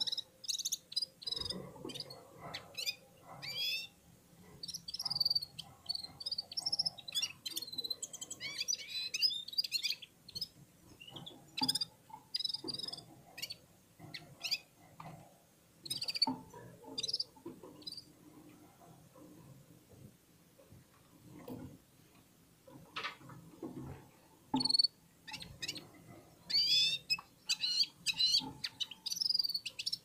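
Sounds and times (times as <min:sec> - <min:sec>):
bird twittering and trilling: 0:00.0 - 0:14.8, 0:15.8 - 0:18.1, 0:24.5 - 0:30.0.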